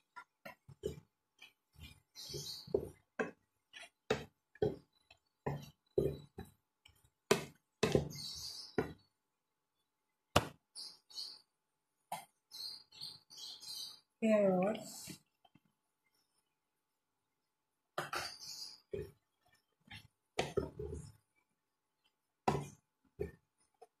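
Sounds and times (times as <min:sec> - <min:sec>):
spatula knocking and scraping pan: 0:00.0 - 0:09.1, 0:19.8 - 0:21.2.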